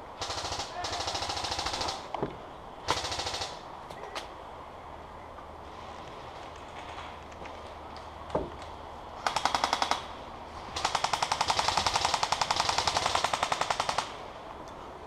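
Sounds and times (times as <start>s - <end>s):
airsoft gun firing bursts: 0.2s - 2.0s, 2.9s - 3.6s, 9.2s - 10.1s, 10.7s - 14.2s.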